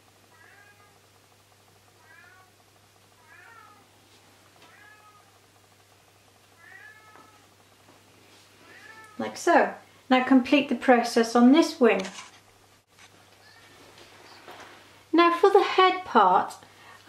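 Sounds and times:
cat meowing: 0.3 - 1.0, 2.0 - 2.5, 3.2 - 3.9, 4.7 - 5.4, 6.6 - 7.5, 8.7 - 9.2.

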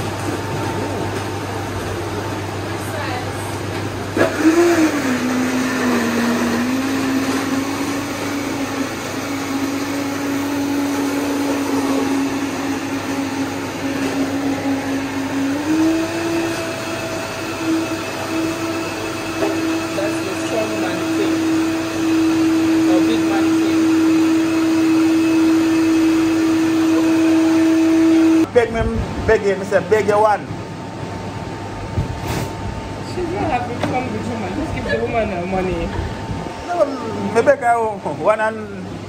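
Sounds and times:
blender motor whine: 4.1 - 28.5.

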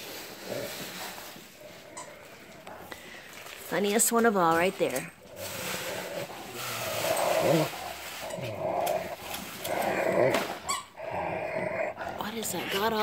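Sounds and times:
small dog growling: 4.9 - 13.0.

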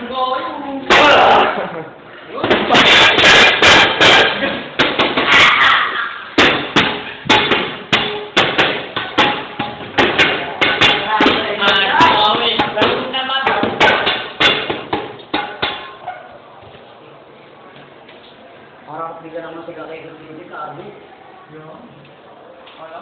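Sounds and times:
people talking and shouting: 0.0 - 23.0
loud knocks or bangs: 2.4 - 5.4, 6.4 - 15.8.

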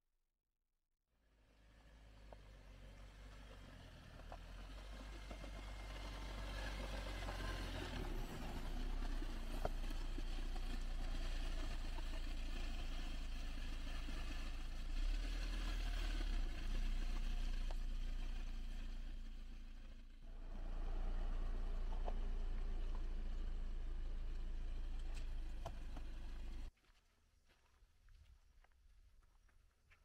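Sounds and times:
vehicle engine rumbling: 1.4 - 26.7.

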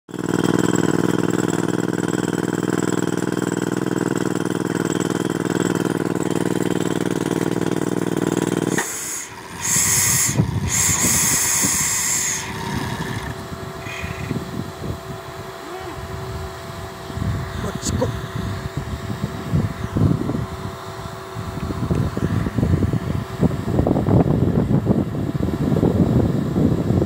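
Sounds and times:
rock drill hammering into rock: 0.1 - 14.4
compressed air hissing: 6.6 - 14.7.

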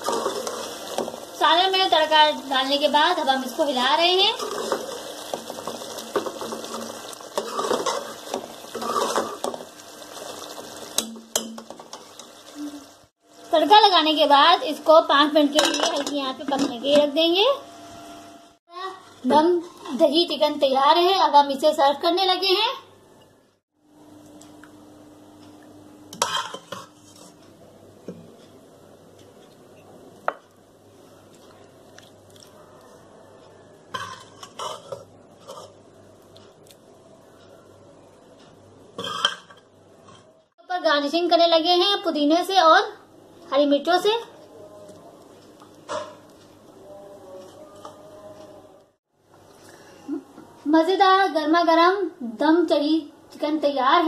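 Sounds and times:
spoon scraping steel pot: 0.0 - 1.0, 4.3 - 9.6, 26.1 - 27.4, 33.9 - 35.8
faint background noise: 25.7 - 54.0.

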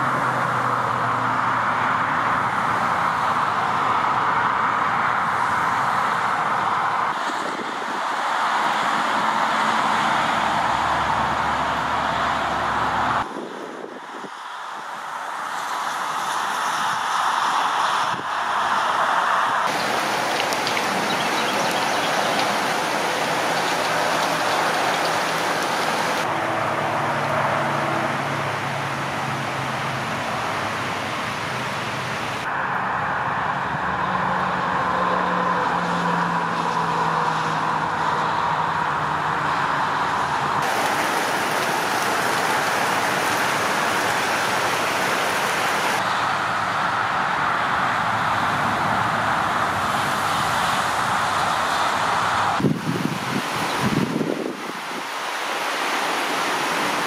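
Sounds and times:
traffic on wet road: 0.0 - 57.0
rain hiss: 19.6 - 26.3, 30.2 - 32.5, 40.6 - 46.6, 49.7 - 57.0.

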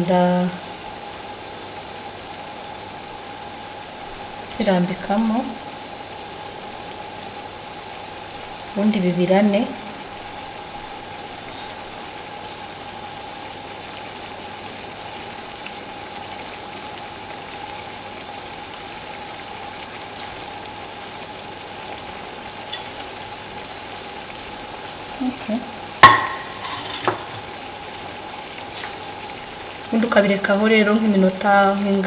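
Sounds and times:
meatballs sizzling in pan: 0.0 - 32.0
sharp knock against pan: 26.0 - 27.3.

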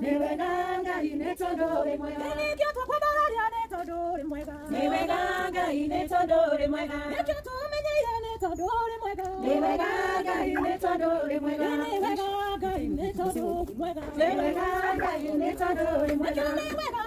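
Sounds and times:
women singing without instruments: 0.0 - 17.0.

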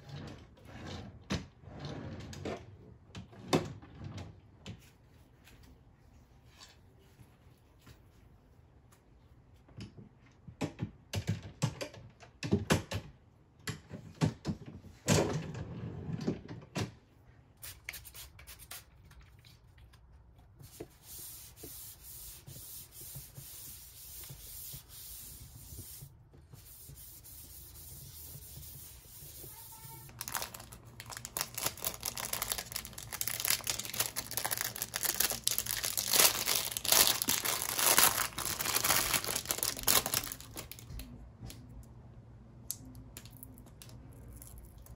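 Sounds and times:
cloth rubbing a desktop: 20.6 - 30.1
plastic bag crinkling: 30.1 - 40.9.

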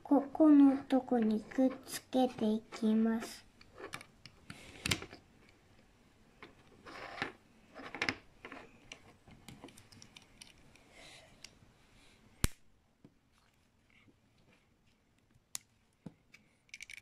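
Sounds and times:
plastic pieces clicking: 7.0 - 10.8, 16.7 - 17.0.

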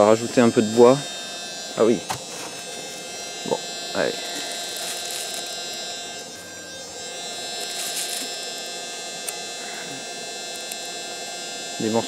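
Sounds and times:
electric blower fan humming: 0.0 - 12.0
wood chips rustling: 4.2 - 5.5, 7.6 - 8.5.

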